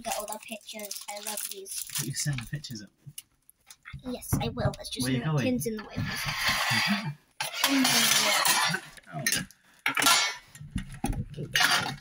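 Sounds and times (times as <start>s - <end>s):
metal tins clinking and rattling: 7.4s - 10.4s, 11.5s - 12.0s.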